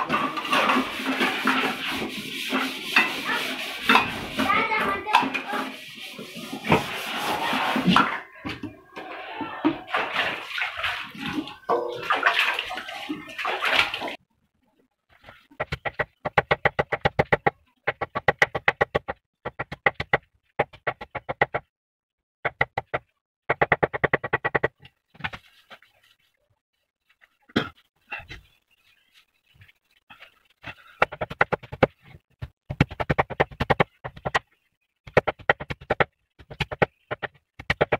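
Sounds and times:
metal pots washed in water: 0:00.0 - 0:14.2.

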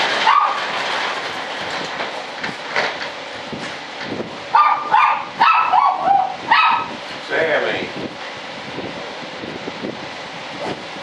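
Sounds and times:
dog barking: 0:00.2 - 0:00.6, 0:04.5 - 0:06.9.

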